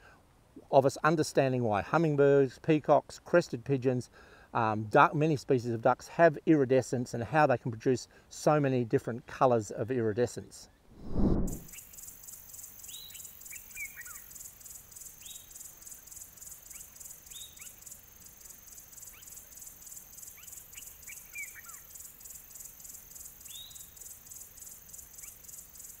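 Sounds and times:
insects trilling: 11.7 - 26.0
bird chirps: 20.2 - 22.3.

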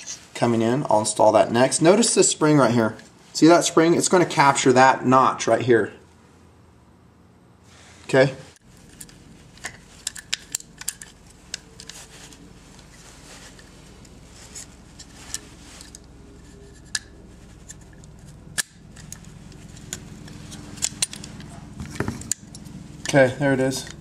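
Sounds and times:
low steady hum: 0.0 - 24.0
light scraping: 7.8 - 22.3
sharp metal clicks: 18.0 - 19.3.

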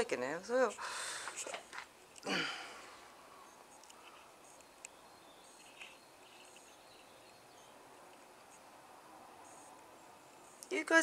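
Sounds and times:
faint bird chirps: 3.3 - 7.8.

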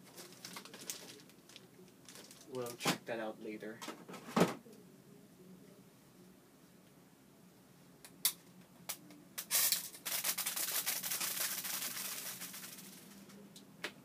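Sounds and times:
packaging crinkling and rustling: 0.0 - 3.0, 9.6 - 13.4.

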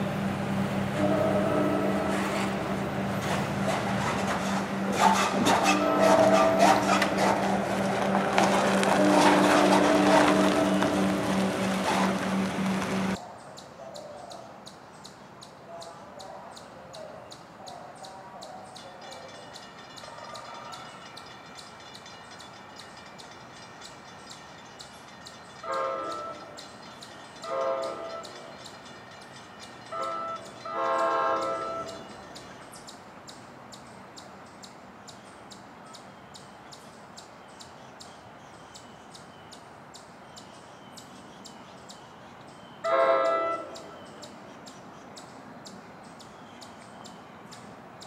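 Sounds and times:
distant locomotive horn: 0.0 - 13.2, 25.6 - 26.6, 27.4 - 28.6, 29.8 - 32.5, 42.8 - 44.2.

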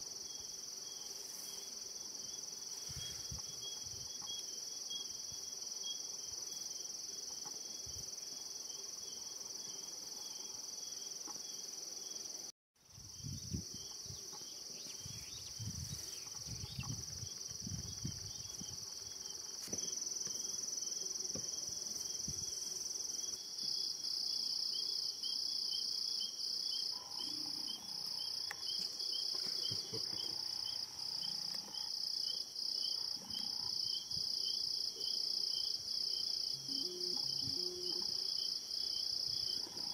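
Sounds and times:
night insects trilling: 0.0 - 39.9
pulsing insect call: 9.0 - 34.8, 35.6 - 39.9.

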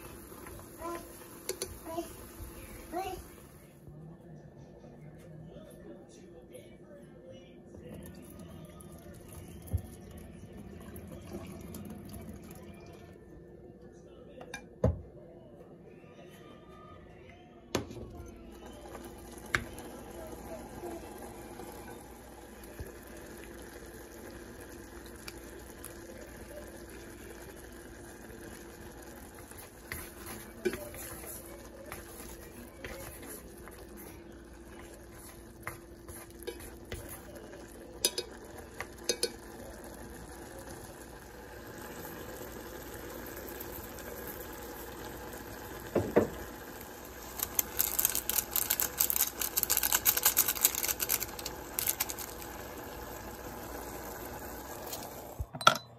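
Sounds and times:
noodles simmering in a saucepan: 0.0 - 3.8, 7.9 - 13.2, 18.4 - 55.5
chopsticks clicking against a pot: 39.1 - 39.4
seasoning packet crinkling: 47.3 - 52.6.

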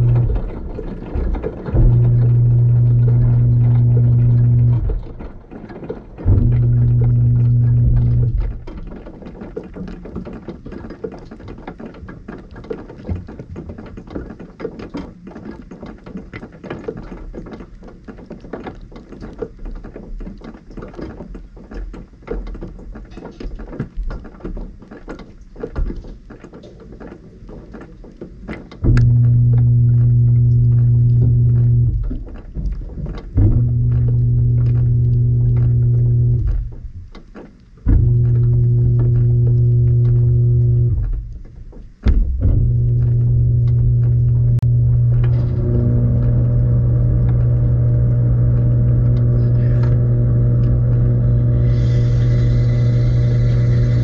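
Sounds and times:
dishwasher pump motor humming: 0.0 - 10.4, 28.7 - 54.0
water dripping on tub: 27.7 - 51.4.

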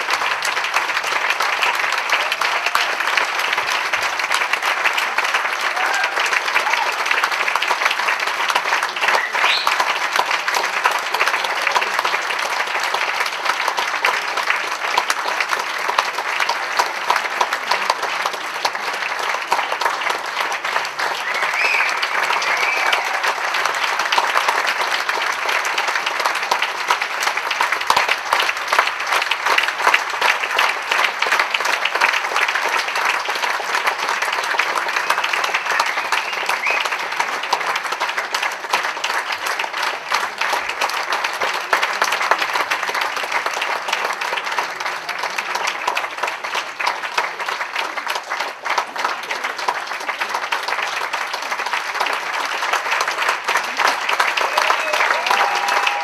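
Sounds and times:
audience applauding: 0.0 - 56.0.

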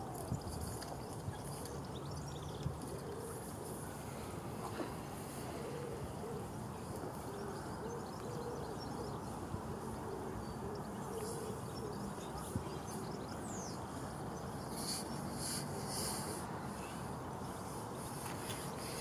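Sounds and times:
outdoor background hiss: 0.0 - 19.0.

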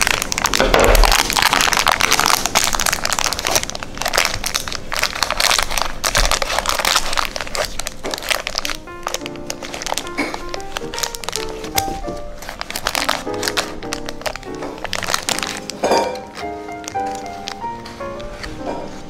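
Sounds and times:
baking paper crinkling: 0.0 - 19.0
biscuit cake crunching: 0.0 - 19.0
background music: 8.1 - 19.0.

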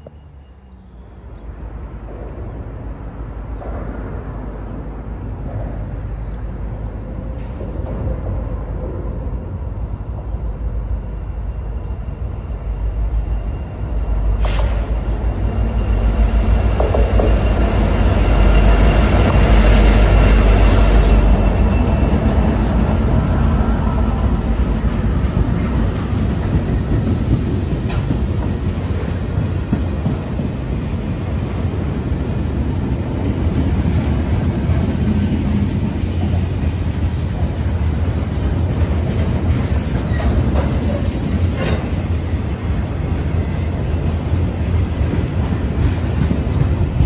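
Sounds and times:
freight train rumbling past: 0.0 - 47.0
train cars rolling: 1.5 - 47.0
high wheel squeal: 11.0 - 24.2.

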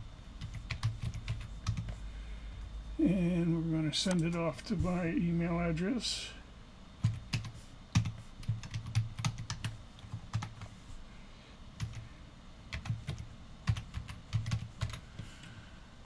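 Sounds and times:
typing on computer keyboard: 0.4 - 2.0, 7.0 - 10.7, 11.8 - 12.0, 12.7 - 15.0.

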